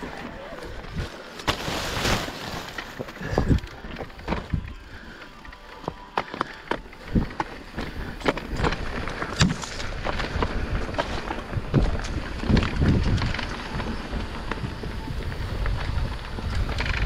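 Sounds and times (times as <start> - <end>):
bike knocks and rattles: 2.7 - 4.9, 5.8 - 17.0.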